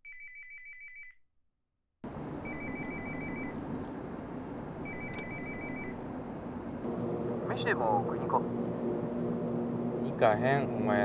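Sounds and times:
road noise inside car: 2.0s - 11.0s
telephone ringing: 2.4s - 3.6s, 4.8s - 6.0s.

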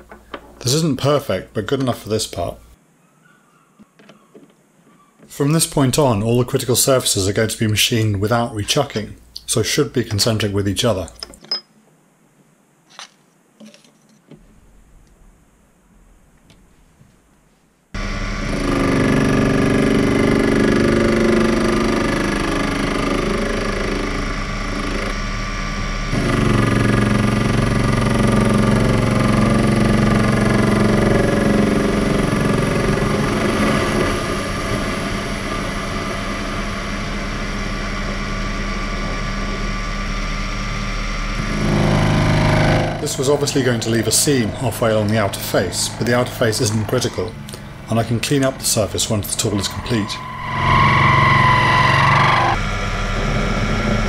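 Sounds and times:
lathe motor whine: 18.0s - 54.0s
cutting tool on steel: 41.4s - 54.0s.

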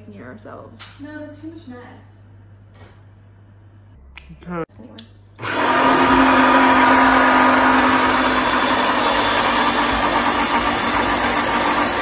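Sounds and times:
stick blender running: 5.4s - 12.0s.

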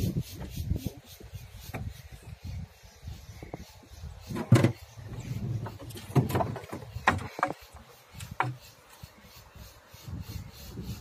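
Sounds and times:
knocks on wooden hull: 5.6s - 7.7s.

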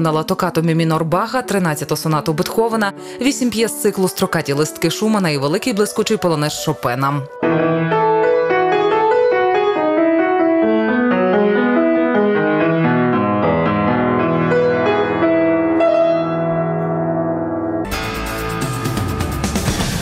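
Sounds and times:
solo classical piano: 7.4s - 17.9s.

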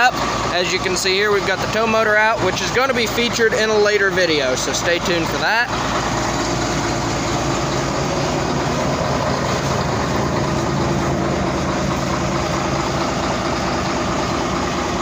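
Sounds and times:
large diesel engine idling: 0.0s - 15.0s.

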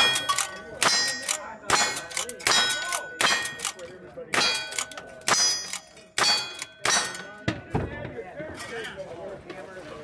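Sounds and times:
steel target clanging: 0.0s - 7.4s.

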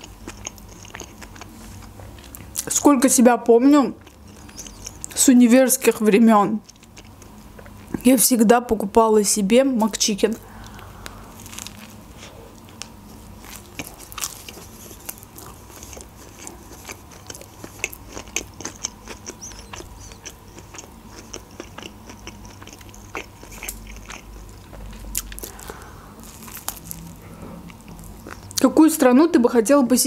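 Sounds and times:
person chewing burger: 0.0s - 2.7s, 4.0s - 5.2s, 6.6s - 8.0s, 10.5s - 28.6s.

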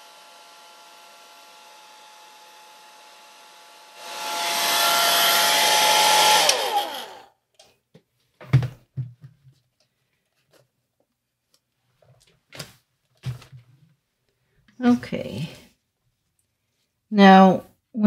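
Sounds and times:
hair dryer motor winding down: 0.0s - 7.3s.

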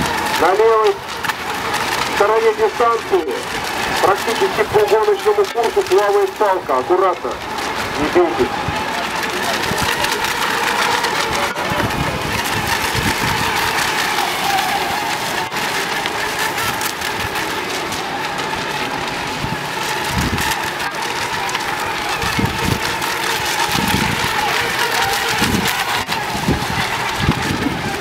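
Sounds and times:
wind buffeting microphone: 7.2s - 28.0s.

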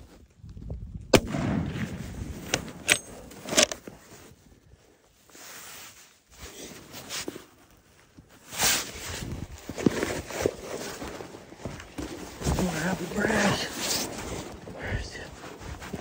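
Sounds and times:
clothing and gear rustling: 2.4s - 16.0s
footsteps: 9.1s - 16.0s.

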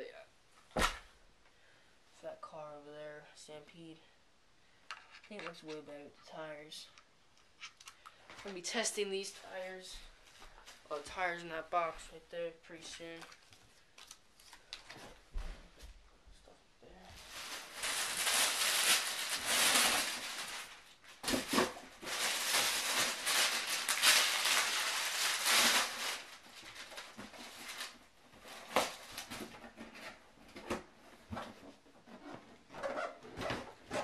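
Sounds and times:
packaging rustling and crinkling: 13.2s - 15.5s, 17.1s - 34.0s.

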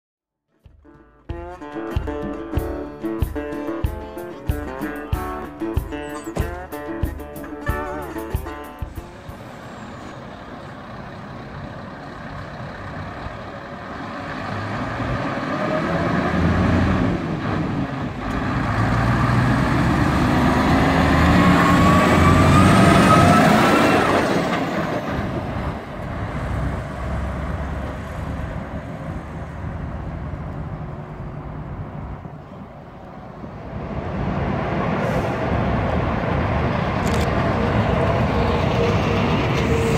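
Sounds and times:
lorry diesel engine revving: 8.9s - 32.3s, 33.8s - 39.9s.

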